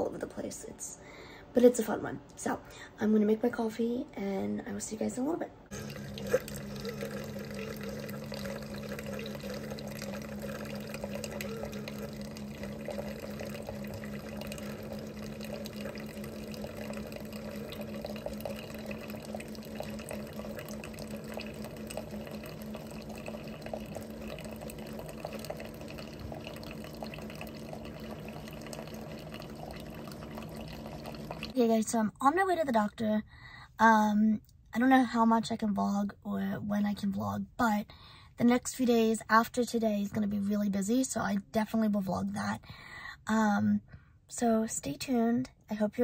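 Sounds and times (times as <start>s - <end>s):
coffee dripping into jar: 5.7s - 31.6s
coffee maker pump humming: 5.7s - 31.7s.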